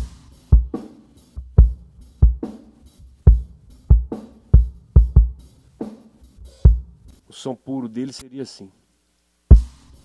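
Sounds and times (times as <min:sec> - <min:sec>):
snare and cymbal hits: 0:00.0 - 0:07.2, 0:09.5 - 0:10.0.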